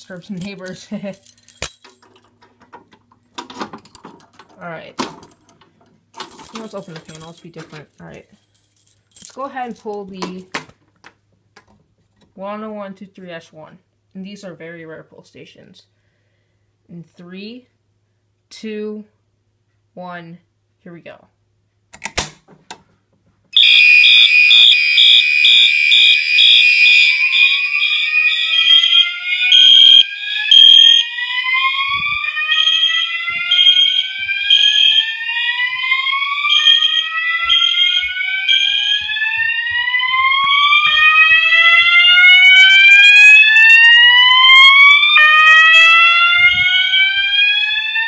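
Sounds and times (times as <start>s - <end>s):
alarm horns sounding: 23.6s - 48.0s
slow-whoop alarm signal: 23.6s - 48.0s.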